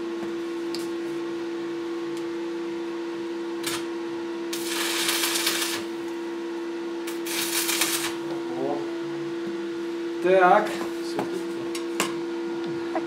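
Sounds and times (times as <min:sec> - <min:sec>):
steady hum: 0:00.0 - 0:13.0
welding arc crackling: 0:03.6 - 0:03.9, 0:04.5 - 0:06.2, 0:07.0 - 0:08.3.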